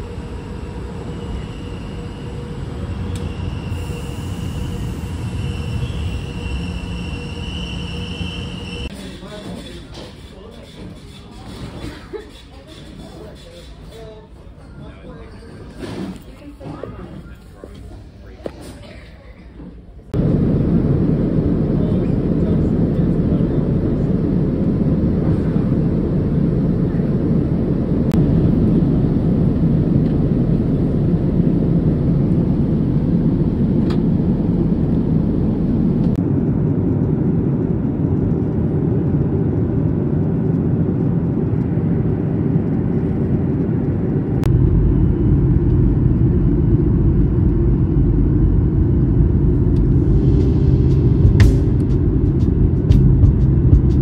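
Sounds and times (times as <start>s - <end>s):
vehicle rumble: 20.1s - 54.0s.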